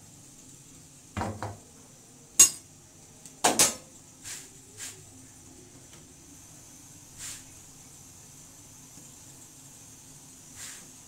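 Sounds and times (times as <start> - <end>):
iron pan knocking on stove grate: 1.2 - 1.6, 3.4 - 3.9.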